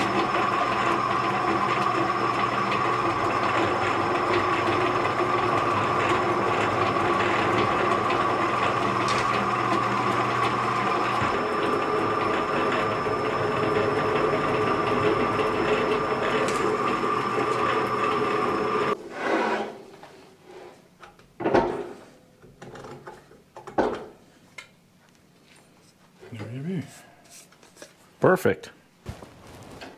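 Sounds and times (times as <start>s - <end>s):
drill press motor humming: 0.0s - 19.0s.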